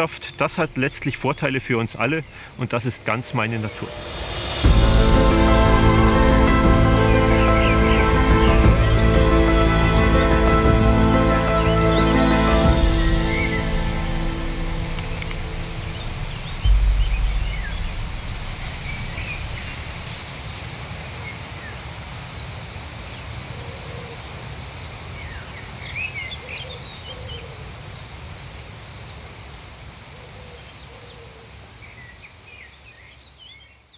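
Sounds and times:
small birds chirping: 0.0s - 4.0s, 6.5s - 33.9s
high ticking bird trills: 0.0s - 20.3s
low rumble: 0.2s - 20.9s
deep low boom: 3.2s - 11.2s, 12.6s - 20.6s.

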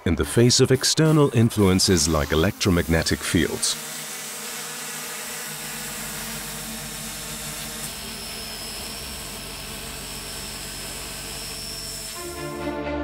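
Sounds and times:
drone motors whirring: 0.0s - 12.4s
thin high whine: 4.4s - 12.4s.

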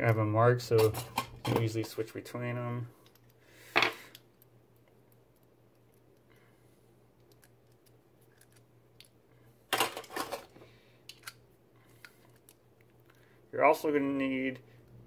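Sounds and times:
small metal parts clattering: 9.7s - 10.5s.

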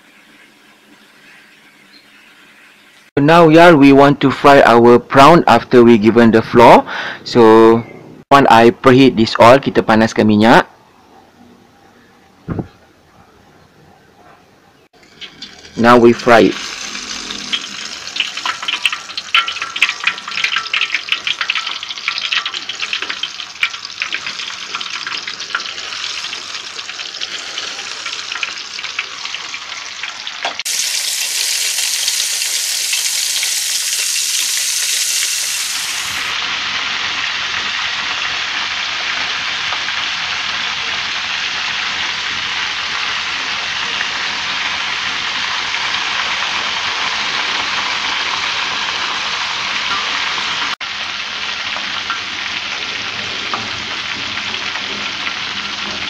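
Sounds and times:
prawns sizzling in hot oil: 15.0s - 56.0s.

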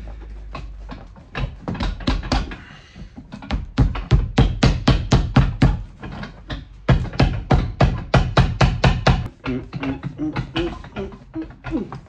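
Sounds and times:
hammer striking leather sole: 3.4s - 5.9s, 6.9s - 9.3s.

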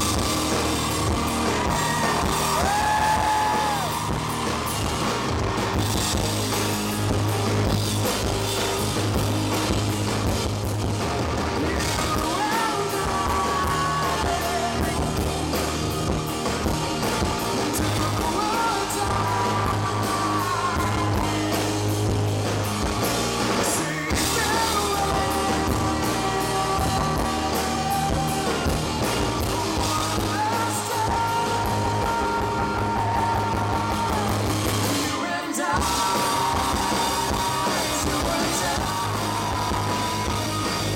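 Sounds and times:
drum kit: 0.0s - 40.9s
electric guitars: 0.0s - 40.9s
man singing lead vocal: 11.5s - 16.2s, 17.0s - 22.2s, 23.5s - 40.9s.

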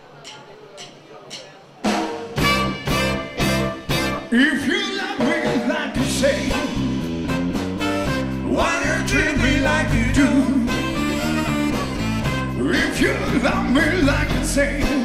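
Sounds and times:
bass and drums: 0.8s - 4.4s, 5.1s - 15.0s
saxophone melody: 2.4s - 4.5s, 6.6s - 13.8s.

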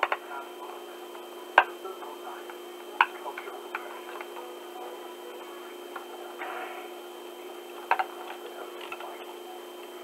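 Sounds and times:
steady low hum: 0.0s - 10.0s
plastic clicks and taps: 7.8s - 9.1s.

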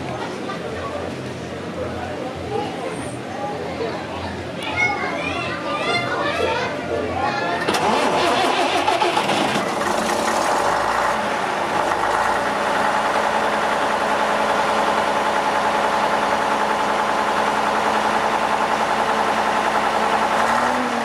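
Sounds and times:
bus diesel engine idling: 7.7s - 21.0s.

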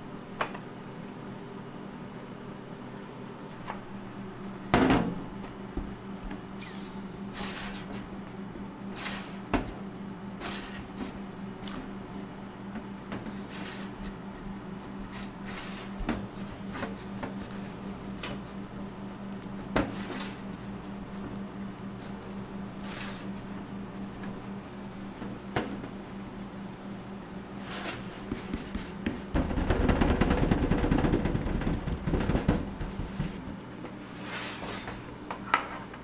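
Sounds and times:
steady low hum: 0.0s - 36.0s
hands pressing dough: 23.1s - 33.6s.

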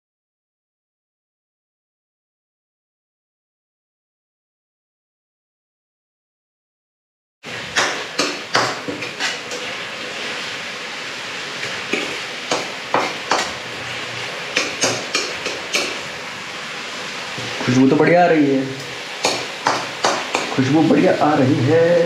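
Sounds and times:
steady sizzle of frying: 7.4s - 22.0s
ladle scraping a pan: 7.8s - 10.5s.

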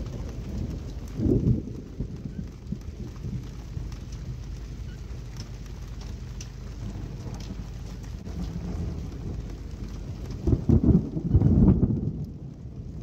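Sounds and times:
faint ticks: 0.0s - 10.4s
wind buffeting microphone: 0.0s - 13.0s.

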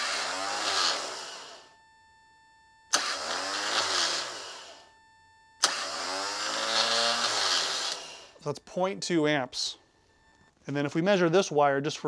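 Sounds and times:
starter motor whirring: 0.0s - 1.8s, 2.9s - 5.0s, 5.6s - 8.4s
starter motor click: 2.9s - 4.3s, 5.6s - 6.0s.

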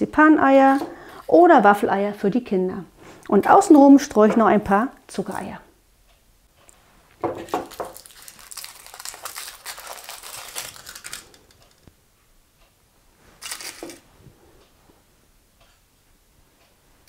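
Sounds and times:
aluminium foil crinkling: 7.3s - 11.9s, 13.4s - 14.0s.

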